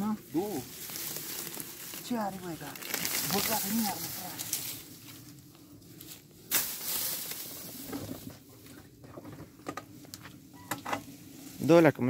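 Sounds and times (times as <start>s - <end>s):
dry grass rustling and crackling: 0.0s - 12.0s
dry stems snapping: 0.7s - 4.9s, 6.5s - 7.5s.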